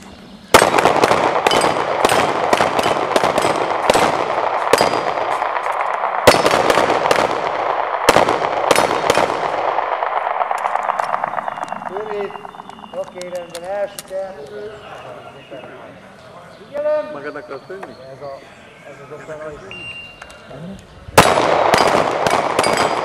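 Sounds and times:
rapid pistol shots: 0.5 - 12.9, 21.2 - 23.0.

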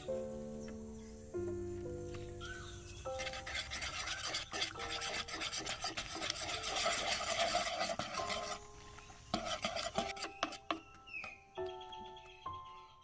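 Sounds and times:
whisk scraping a wooden bowl: 3.0 - 10.9.

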